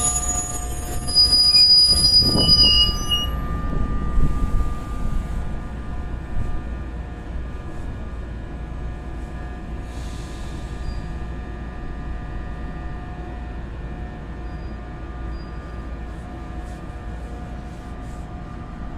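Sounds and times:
train wheel squeal: 0.0 - 5.8, 10.2 - 11.4, 14.3 - 16.2
low train rumble: 0.0 - 18.9.

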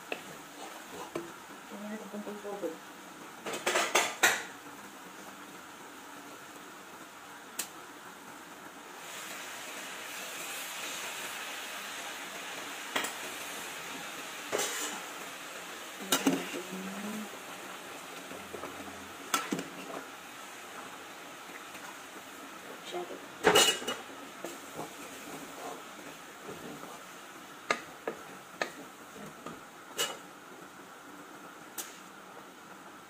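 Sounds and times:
steady hiss: 0.0 - 33.0
dishes and utensils clinking: 23.4 - 24.0.

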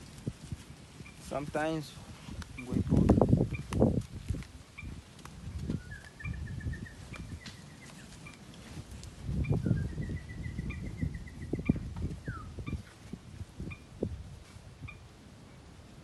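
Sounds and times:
rustling and thumps of movement: 0.0 - 6.2, 7.0 - 9.8
bird trilled calls: 1.0 - 1.3, 5.8 - 8.4, 9.4 - 12.9, 13.7 - 13.9.

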